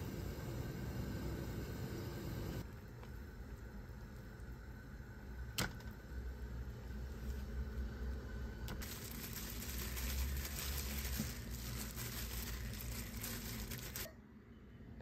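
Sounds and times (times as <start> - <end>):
steady low hum: 0.0 - 15.0
plastic gloves crinkling: 8.8 - 14.1.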